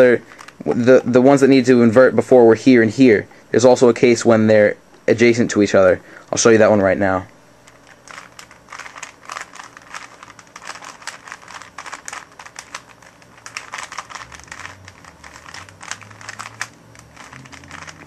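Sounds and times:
puzzle cube twisting clicks: 7.7s - 18.0s.

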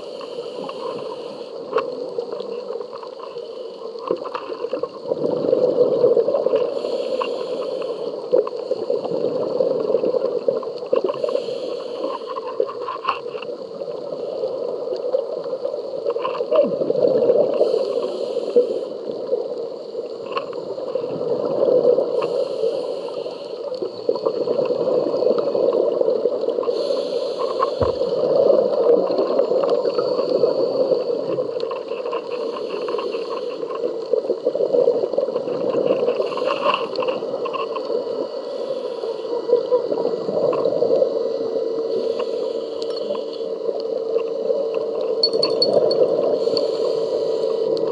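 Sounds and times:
muffled underwater noise: 0.0s - 47.9s
gurgling exhaled bubbles: 4.6s - 6.8s, 16.4s - 17.8s, 20.9s - 22.2s, 28.0s - 31.6s.

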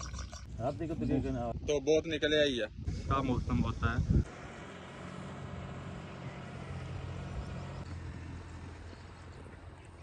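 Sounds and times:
low engine hum: 4.0s - 10.0s.

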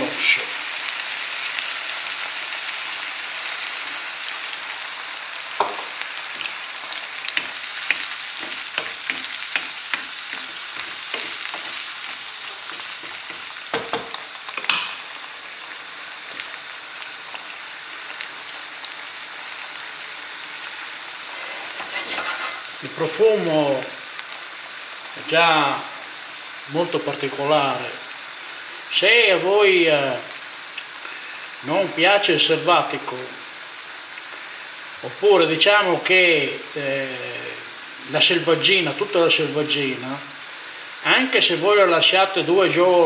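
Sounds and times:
meat sizzling in a frying pan: 0.0s - 43.0s
wooden spoon knocking against pan: 13.0s - 15.0s.

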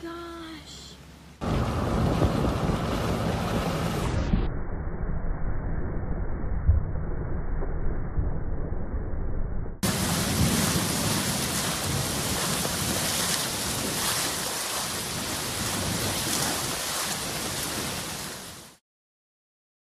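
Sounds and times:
muffled rumble: 1.4s - 16.5s
heavy rain on flooded street: 9.8s - 18.8s.

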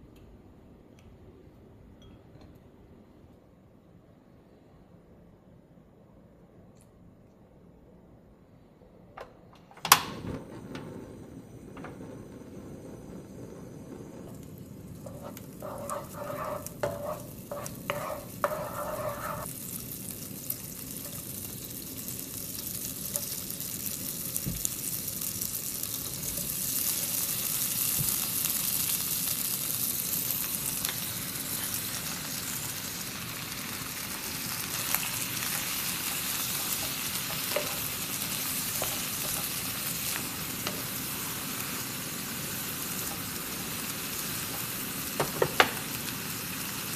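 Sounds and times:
food sizzling in a pan: 10.4s - 46.9s.

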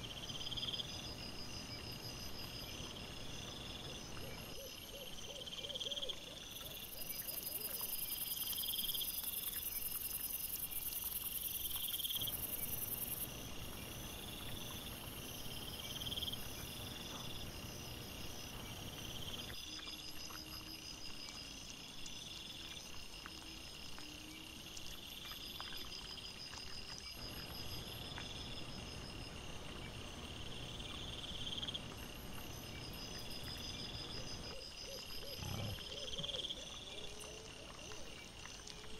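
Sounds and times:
crickets chirping: 0.0s - 38.9s.

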